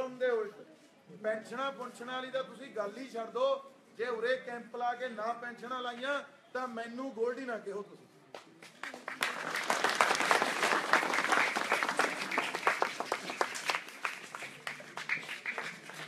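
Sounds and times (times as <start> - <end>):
crowd clapping: 8.6 - 16.0.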